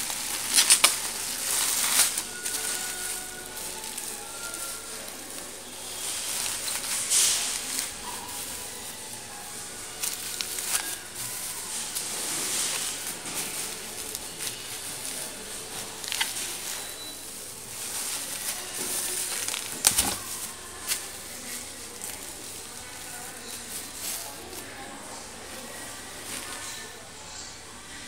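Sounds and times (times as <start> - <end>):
bubble wrap rustling and crinkling: 0.0 - 27.2.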